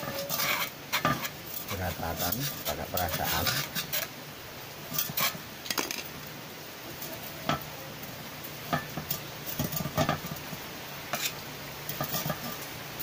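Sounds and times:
scrapes and knocks on metal pipe: 0.0 - 4.1, 11.1 - 12.6.

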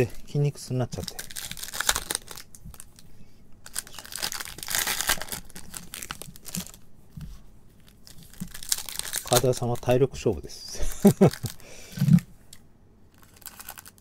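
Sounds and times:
foil wrappers crinkling and tearing: 0.8 - 6.9, 7.8 - 10.1, 10.8 - 11.7, 13.1 - 14.0.

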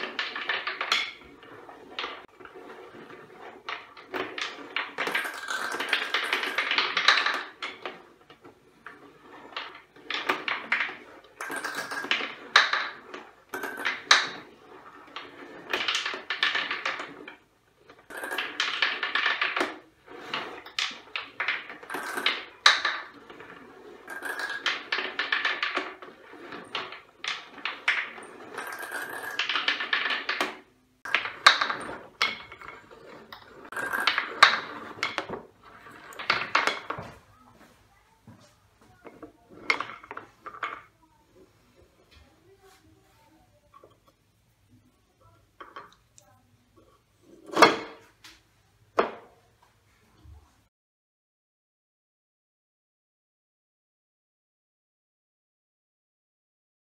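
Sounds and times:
gumballs rattling down wooden tracks: 0.0 - 37.3.

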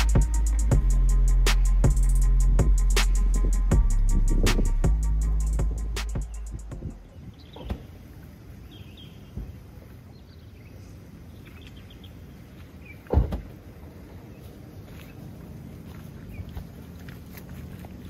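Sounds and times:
bird chirps: 5.2 - 8.0, 8.6 - 13.1.

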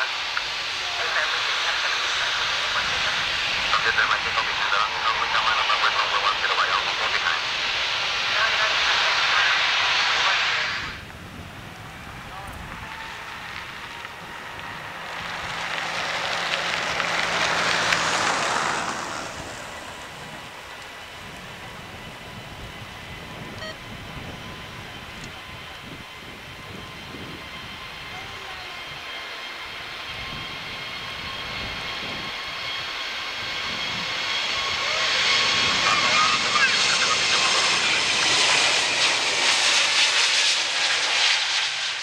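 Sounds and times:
jet engines roaring: 0.0 - 42.0
vehicle rushing past: 13.0 - 20.6.

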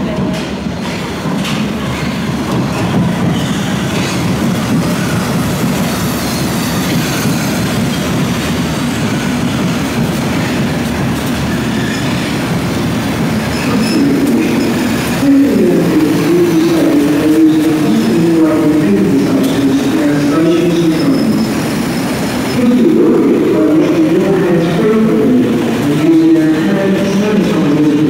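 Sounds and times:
train wheels rumbling on rail: 0.0 - 28.0
high wheel squeal: 11.6 - 12.3, 20.8 - 22.6.

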